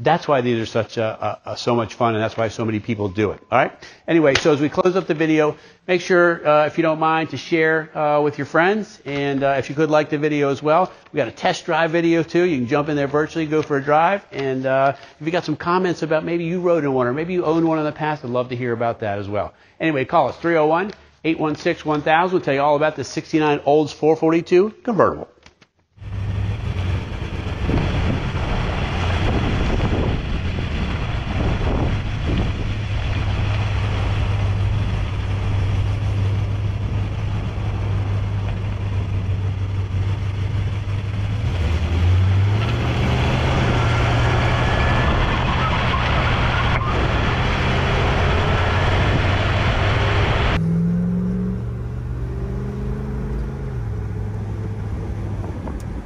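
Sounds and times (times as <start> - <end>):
car exhaust rumble: 26.0 - 56.0
engine revving at gear change: 26.0 - 56.0.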